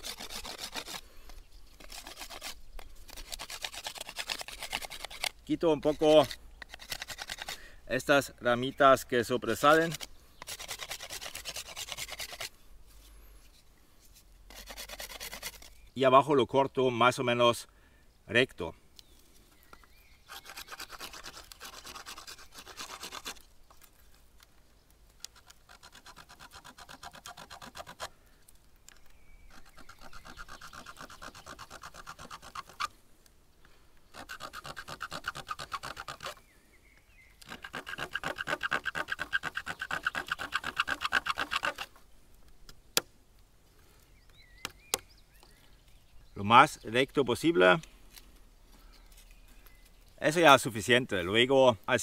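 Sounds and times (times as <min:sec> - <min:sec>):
stone flake sawing wooden stick: 0:00.0 - 0:07.6, 0:09.4 - 0:12.6, 0:14.0 - 0:15.9, 0:20.2 - 0:23.5, 0:25.2 - 0:28.1, 0:29.4 - 0:32.9, 0:34.1 - 0:36.4, 0:37.4 - 0:42.0.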